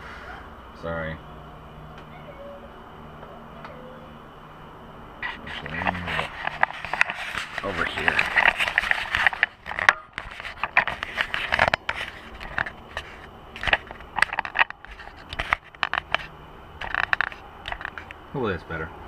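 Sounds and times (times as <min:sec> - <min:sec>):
camera handling scrapes and knocks: 0:05.2 - 0:18.1.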